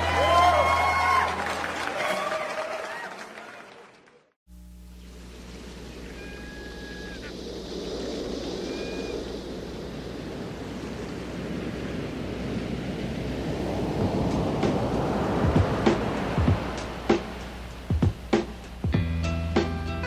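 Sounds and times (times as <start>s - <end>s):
ocean surf: 0.0s - 2.4s, 5.2s - 20.0s
wind: 0.0s - 3.8s, 4.5s - 20.0s
high whistling tones: 6.1s - 10.4s.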